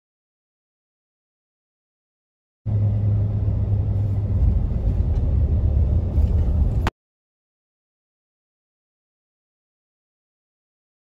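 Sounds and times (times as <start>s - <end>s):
car driving rumble: 2.7s - 6.9s.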